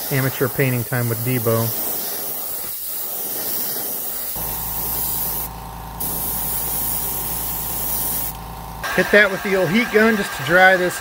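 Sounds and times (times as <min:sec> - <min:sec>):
airbrush hissing: 0:00.0 - 0:11.0
small motor humming: 0:03.6 - 0:08.9.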